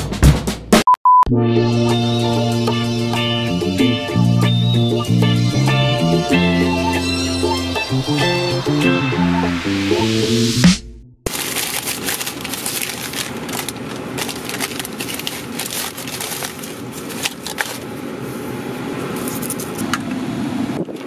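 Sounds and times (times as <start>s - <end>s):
plucked-string intro music: 1.3s - 11.2s
paper bag crinkling: 11.3s - 18.5s.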